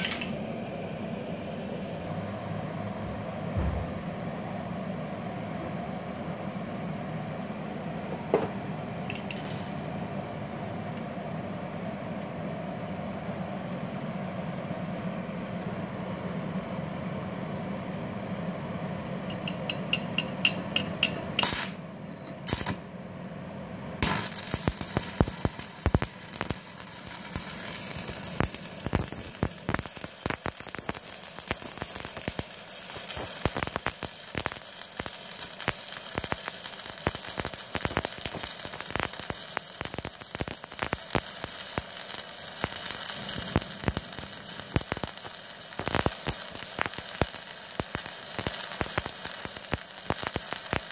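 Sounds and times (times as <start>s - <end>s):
welding arc crackling sizzle: 0.0s - 2.2s, 19.2s - 22.9s, 24.0s - 50.9s
welding arc sputtering: 19.3s - 21.8s, 22.4s - 22.9s, 24.0s - 50.9s.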